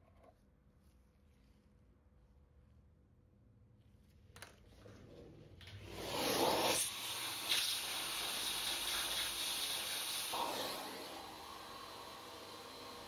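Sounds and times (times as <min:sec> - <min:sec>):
vacuum nozzle hissing: 0:05.9 - 0:13.0.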